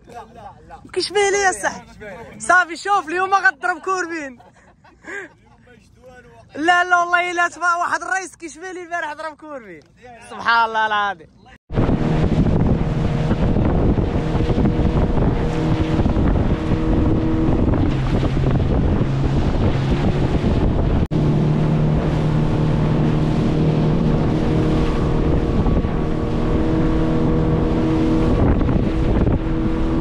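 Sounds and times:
motorboat engine running: 11.7s - 30.0s
wind buffeting microphone: 11.7s - 30.0s.

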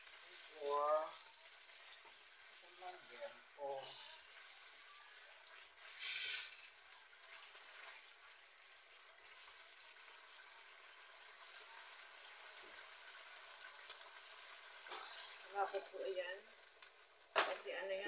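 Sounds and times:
hiss of stirring with spoon: 0.0s - 8.4s, 11.4s - 16.4s
chicken sizzling in sauce: 0.0s - 18.0s.

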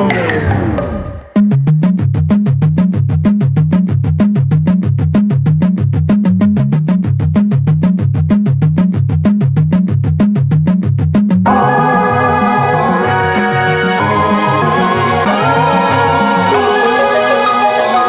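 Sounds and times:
electronic synthesizer music: 11.4s - 18.0s.

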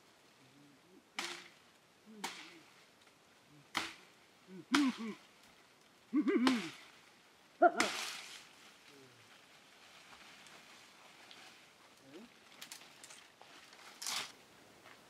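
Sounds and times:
leaves rustling: 0.0s - 15.0s
blade chopping tree branches: 1.2s - 1.6s, 2.2s - 2.6s, 3.7s - 4.1s, 4.7s - 5.1s, 6.3s - 6.9s, 7.8s - 8.3s.

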